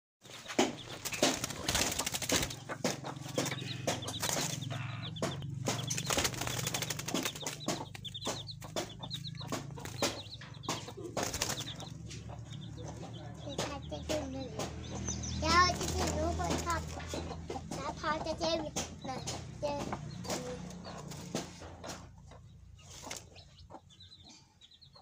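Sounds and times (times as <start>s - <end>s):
birds flapping wings: 0.2s - 12.7s, 15.4s - 17.7s, 22.9s - 23.3s.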